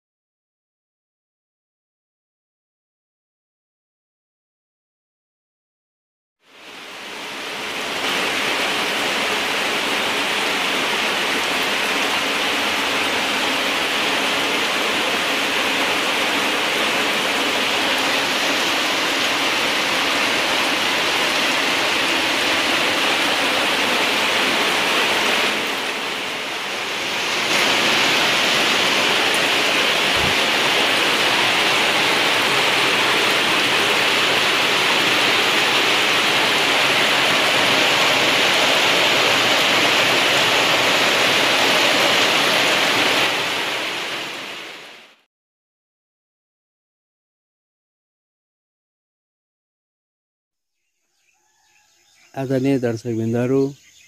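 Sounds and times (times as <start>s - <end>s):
rain falling: 6.4s - 45.2s.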